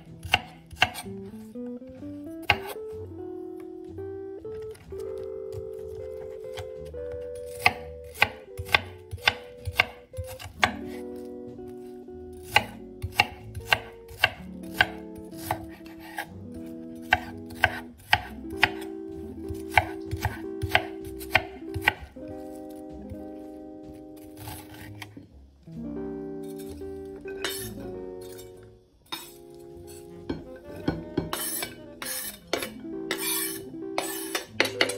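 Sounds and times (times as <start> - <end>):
soft background music: 0.0 - 34.9
knife chopping on wooden board: 0.2 - 1.1, 2.4 - 2.8, 5.5 - 11.0, 12.4 - 16.3, 17.0 - 18.9, 19.5 - 23.1, 30.3 - 34.9.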